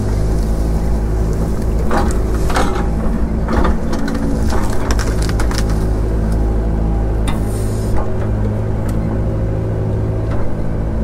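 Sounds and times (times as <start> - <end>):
stumps and dirt crunching: 0.0 - 9.4
diesel engine running: 0.0 - 11.0.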